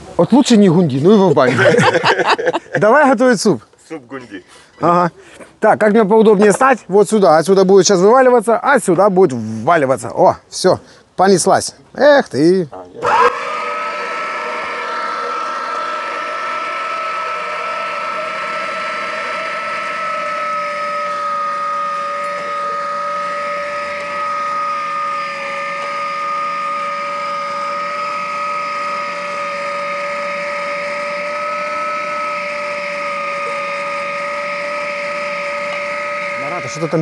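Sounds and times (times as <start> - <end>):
electric meat grinder whining: 1.5 - 2.5, 13.0 - 37.0.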